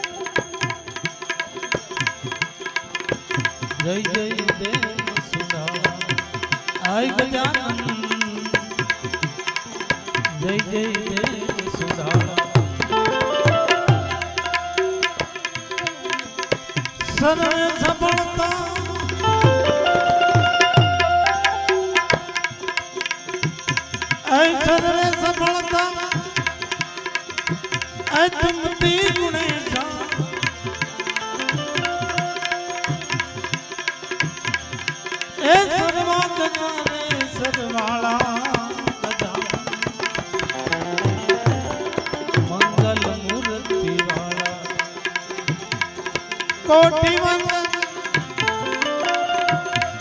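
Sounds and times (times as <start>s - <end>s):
harmonium: 0.0s - 50.0s
man singing: 3.8s - 16.2s, 17.0s - 20.2s, 24.2s - 26.7s, 28.1s - 30.6s, 35.4s - 45.4s, 46.6s - 49.2s.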